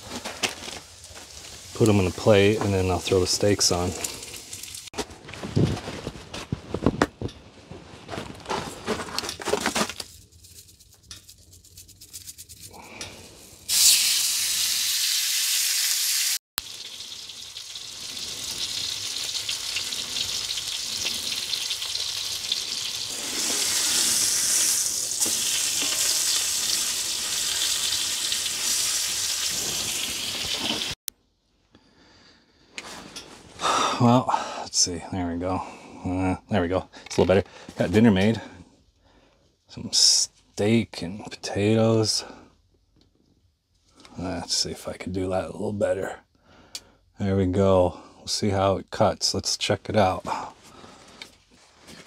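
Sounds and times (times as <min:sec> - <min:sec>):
meat sizzling in a skillet: 0:03.3 - 0:04.9, 0:13.6 - 0:31.0.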